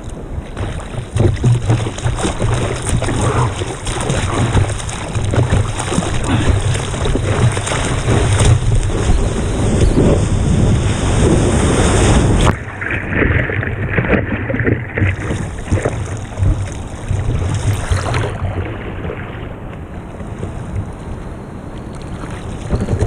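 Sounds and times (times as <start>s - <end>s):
rushing water: 0.0s - 23.0s
water splashing and lapping: 0.0s - 23.0s
wind on microphone: 0.0s - 23.0s.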